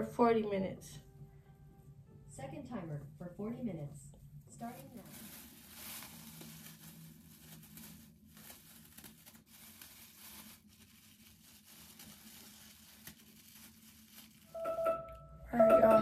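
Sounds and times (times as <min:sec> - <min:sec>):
plastic shower cap crinkling: 0:04.6 - 0:14.7.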